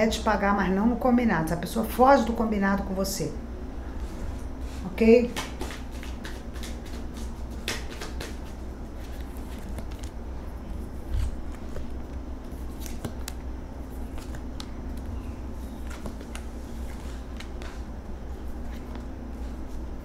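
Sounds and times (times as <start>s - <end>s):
low hum: 0.0s - 20.0s
cards snapping and tapping: 5.4s - 10.1s, 12.7s - 13.4s, 14.1s - 15.0s, 15.8s - 16.5s.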